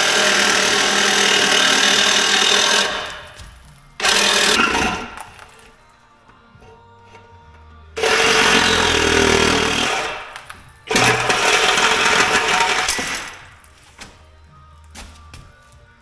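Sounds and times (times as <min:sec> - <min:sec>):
reciprocating saw cutting steel pipe: 0:00.0 - 0:03.4, 0:04.0 - 0:05.6, 0:08.0 - 0:13.5.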